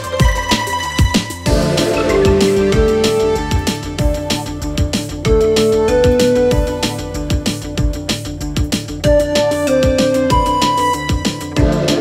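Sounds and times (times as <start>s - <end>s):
background music with steady beat: 0.0s - 12.0s
held melody notes: 1.5s - 7.7s.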